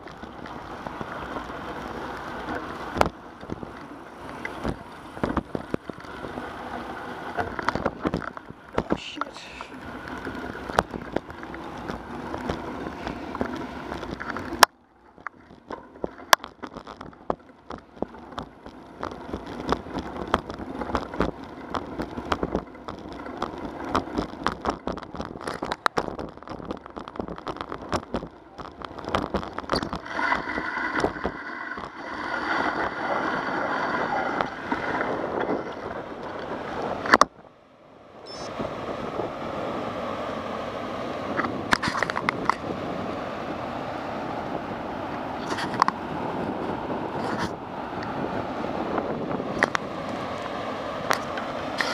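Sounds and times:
bicycle rumbling over concrete: 0:00.0 - 0:51.9
rushing water: 0:00.0 - 0:51.9
wind on microphone: 0:38.2 - 0:51.9.

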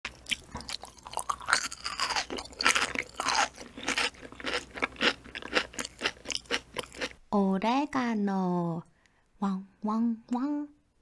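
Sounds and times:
wet chewing crunches: 0:00.1 - 0:07.2.

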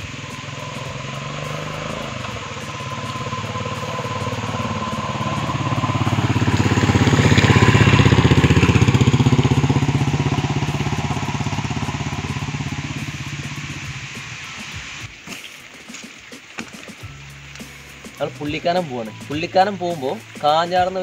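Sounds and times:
motorcycle engine running: 0:00.0 - 0:15.1.

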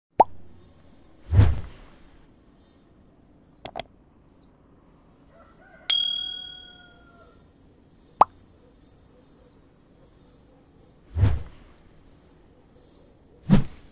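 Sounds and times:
bell ding: 0:05.9 - 0:06.9.

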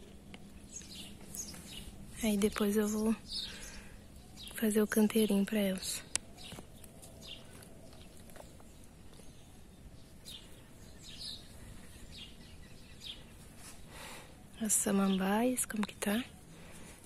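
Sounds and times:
faint bird chirps: 0:00.0 - 0:16.8
low background hiss: 0:00.0 - 0:17.0.

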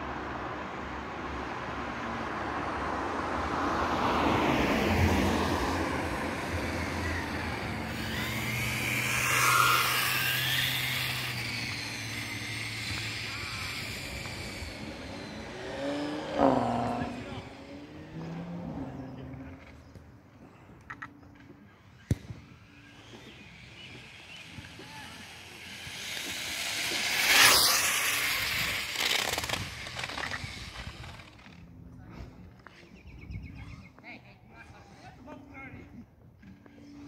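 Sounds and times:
rc car motor whining: 0:05.6 - 0:19.8, 0:21.8 - 0:31.7.

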